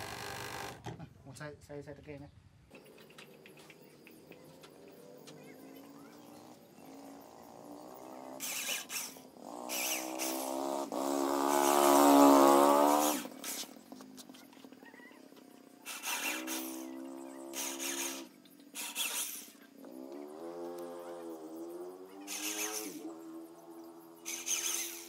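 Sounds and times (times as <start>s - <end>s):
cordless drill motor whine: 0.0s - 0.9s
short hissy bursts: 15.8s - 16.9s, 17.5s - 19.7s, 22.3s - 23.1s, 24.2s - 25.0s.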